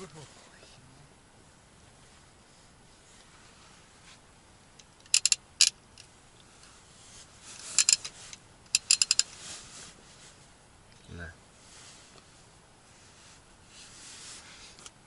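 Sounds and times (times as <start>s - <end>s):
sharp metallic clicks: 4.8s - 6.1s, 7.6s - 9.3s.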